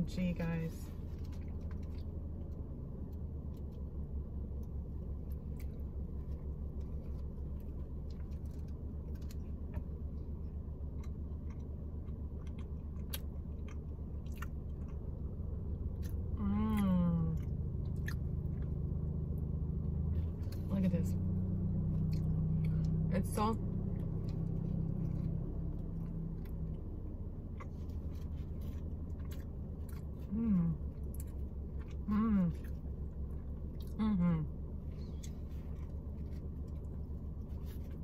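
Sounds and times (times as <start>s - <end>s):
low hum: 0.0s - 38.0s
wet chewing mouth clicks: 11.0s - 15.0s
person humming mmm: 30.3s - 30.8s.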